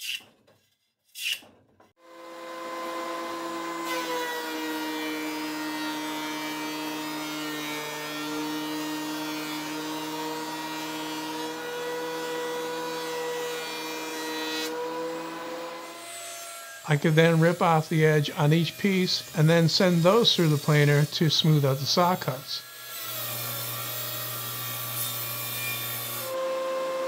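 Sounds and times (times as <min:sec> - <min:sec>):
planer motor whine: 0:02.0 - 0:04.2
planer knives cutting wood hiss: 0:16.8 - 0:22.6.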